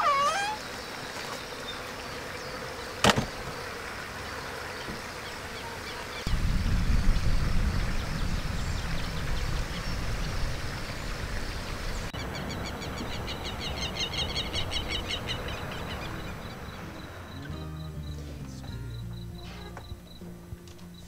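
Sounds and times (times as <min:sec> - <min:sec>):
low rumble: 0:06.3 - 0:12.1
rapid trilling chirps: 0:11.7 - 0:20.2.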